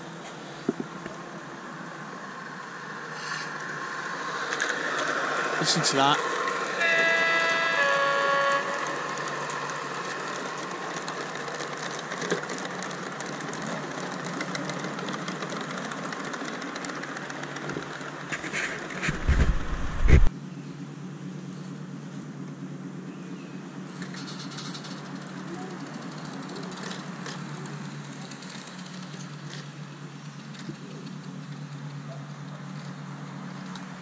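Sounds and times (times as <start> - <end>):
diesel engine sound from small speaker: 5.1 - 34.0.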